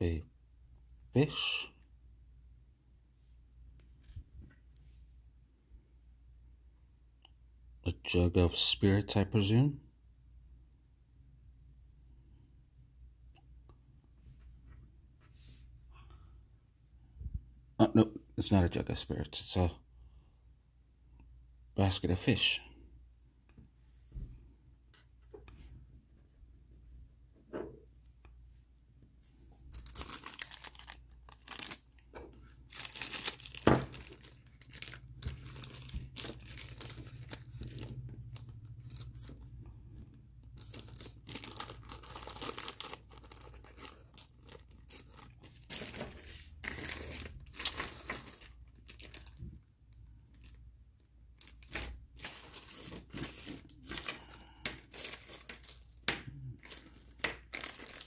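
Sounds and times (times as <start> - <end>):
plastic packaging crinkling and tearing: 29.7 - 39.6, 40.4 - 50.6, 51.4 - 58.0.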